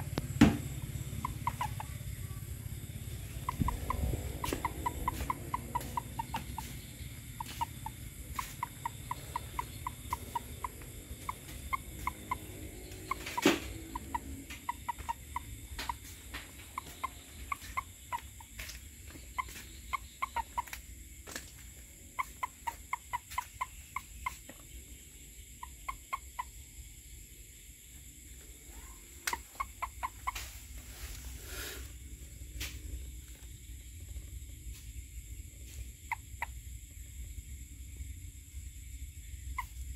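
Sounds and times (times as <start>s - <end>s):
frogs calling: 0.0s - 39.9s.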